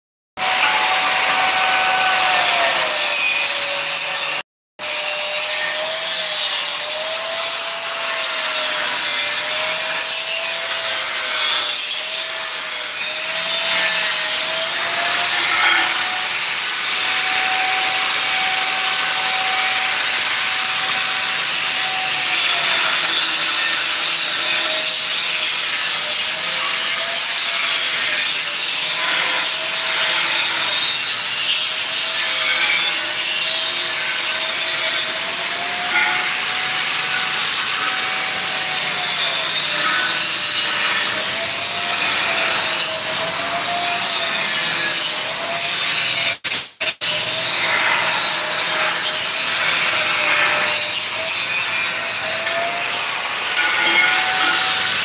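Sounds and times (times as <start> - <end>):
angle grinder cutting: 0.4 - 55.0.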